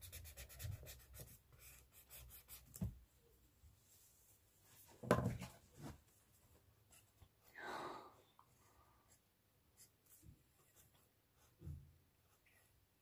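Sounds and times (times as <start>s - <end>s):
pencil scratching on paper: 0.0s - 2.9s.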